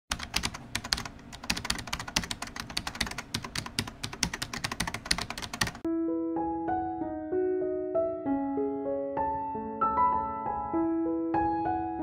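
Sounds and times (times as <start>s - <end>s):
keyboard typing: 0.1s - 5.9s
piano playing: 1.7s - 12.0s.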